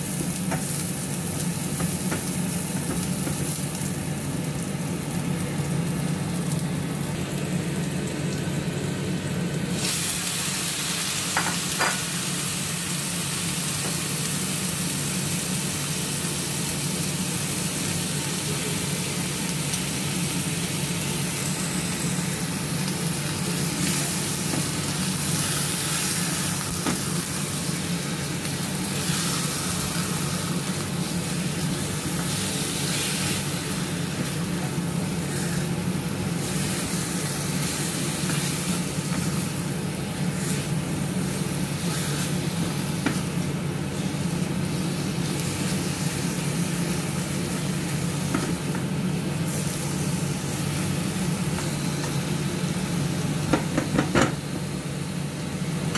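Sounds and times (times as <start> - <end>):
chicken sizzling in oil: 0.0 - 55.9.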